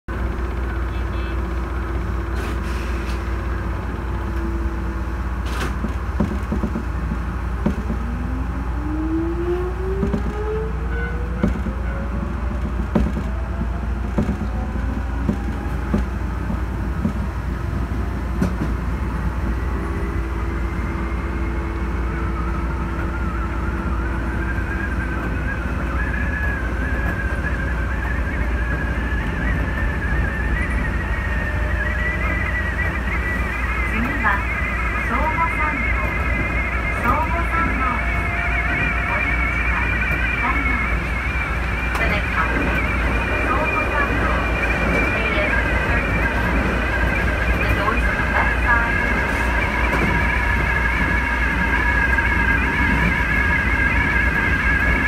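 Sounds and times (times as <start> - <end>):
train low rumble: 0.0 - 55.0
higher wavering whine: 19.1 - 55.0
train motor whine rising: 19.5 - 55.0.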